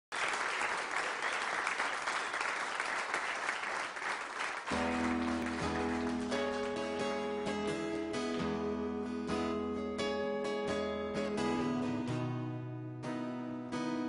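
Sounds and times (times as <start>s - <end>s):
audience applauding: 0.1s - 7.2s
band playing with ringing guitar: 4.7s - 14.0s.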